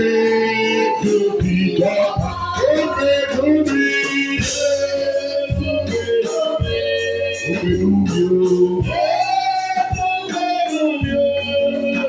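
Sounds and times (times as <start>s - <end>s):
gospel singing: 0.0s - 12.0s
keyboard organ: 0.0s - 12.0s
steady percussion beat: 0.0s - 12.0s.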